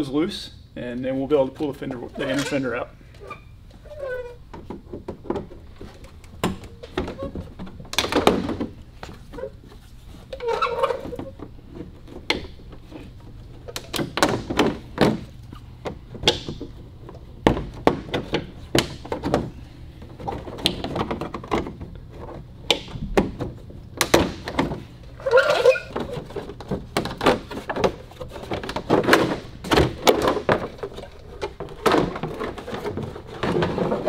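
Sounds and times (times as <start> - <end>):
plastic scraping: 18.0 - 34.0.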